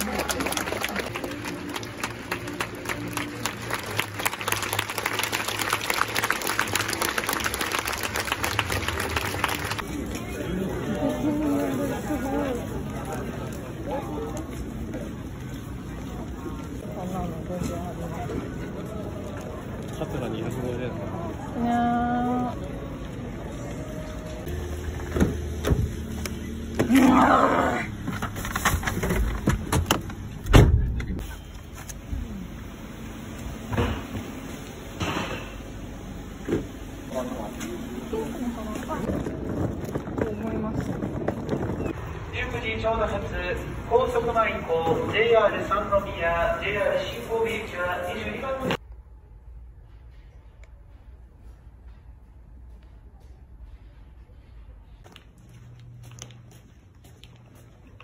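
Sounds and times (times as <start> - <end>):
close hands clapping: 0.0 - 9.8
crowd applauding: 0.0 - 9.9
footsteps: 49.7 - 58.0.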